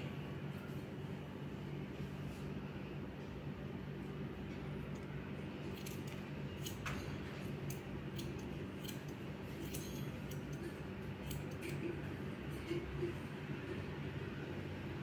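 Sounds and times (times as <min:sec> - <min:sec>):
scissors snipping hair: 0:05.8 - 0:12.0.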